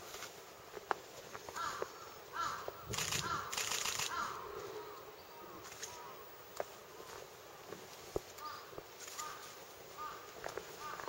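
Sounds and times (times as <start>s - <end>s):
rustling noise: 0.0s - 4.8s, 5.6s - 11.0s
bird calling: 1.5s - 7.3s, 8.4s - 11.0s.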